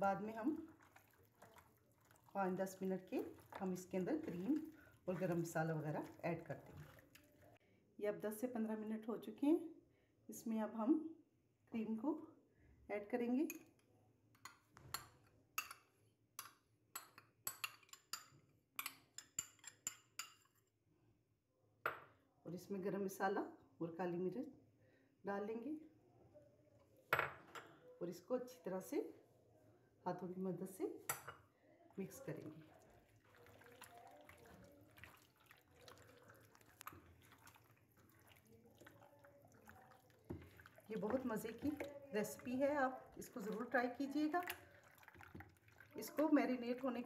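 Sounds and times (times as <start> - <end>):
wet squelching of hands mixing: 0.0 - 7.6, 31.9 - 47.0.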